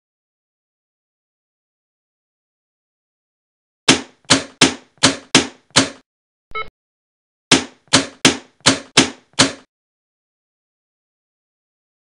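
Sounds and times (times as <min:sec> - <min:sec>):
sharp knocks: 0:03.9 - 0:06.0, 0:07.5 - 0:09.7
short electronic beep: 0:06.5 - 0:06.7.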